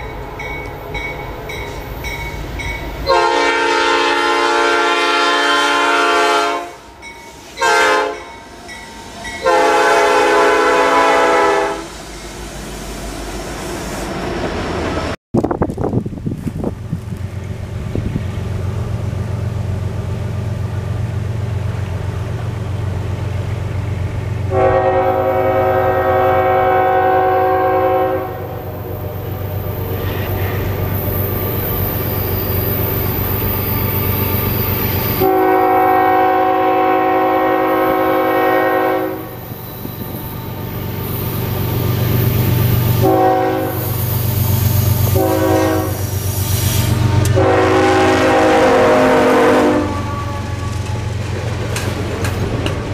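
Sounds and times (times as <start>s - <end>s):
train rumble: 0.0s - 52.9s
locomotive horn blasts: 3.0s - 8.4s, 9.3s - 12.0s, 24.5s - 28.7s, 35.2s - 39.4s, 43.0s - 43.9s, 44.9s - 46.2s, 46.9s - 51.0s.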